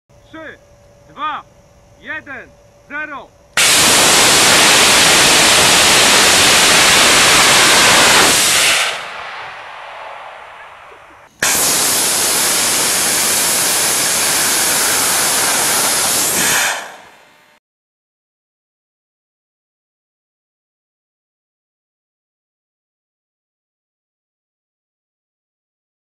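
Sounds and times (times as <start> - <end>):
rocket motor exhaust roar: 3.5 - 17.6.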